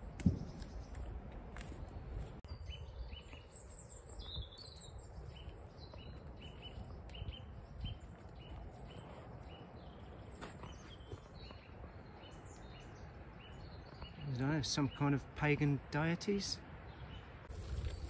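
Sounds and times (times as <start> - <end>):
small birds chirping: 0.0 - 18.0
strong wind buffeting microphone: 4.1 - 9.9.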